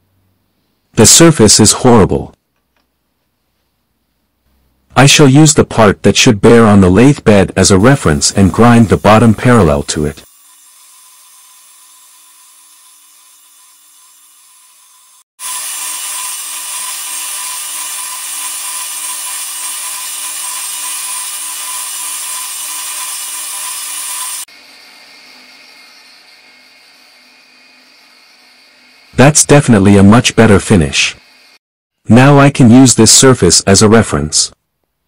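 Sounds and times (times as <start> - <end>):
grinding wheel hissing on metal: 7.8 - 29.2.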